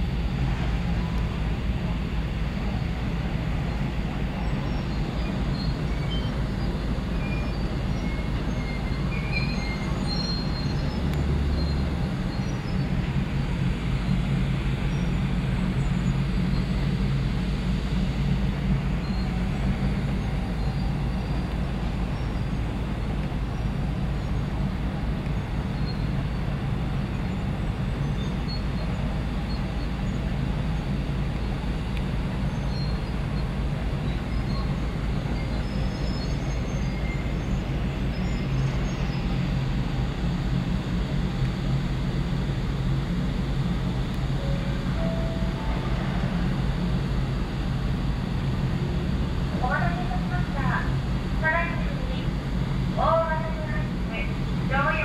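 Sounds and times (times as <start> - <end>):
ship machinery hum: 0.0 - 55.0
wind: 0.0 - 55.0.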